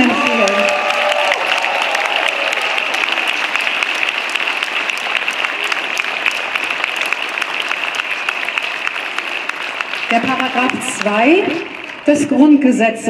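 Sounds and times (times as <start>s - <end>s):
crowd applauding: 0.0s - 12.6s.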